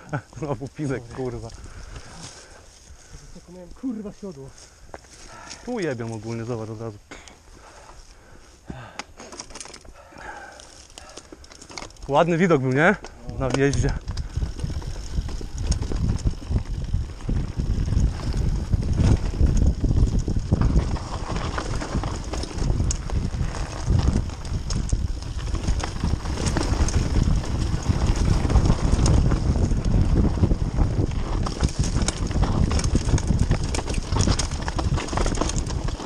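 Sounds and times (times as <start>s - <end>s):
wind buffeting microphone: 0.0s - 3.3s, 12.8s - 36.0s
bike rumbling on dirt trail: 0.0s - 36.0s.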